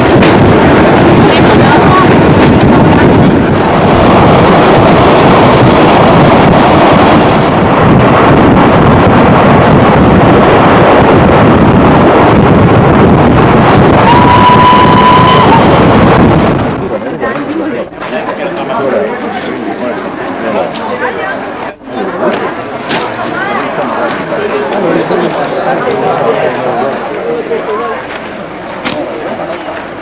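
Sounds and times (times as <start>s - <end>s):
wind buffeting microphone: 0.0s - 18.2s
steam train running: 0.0s - 30.0s
steam whistle: 14.0s - 15.7s.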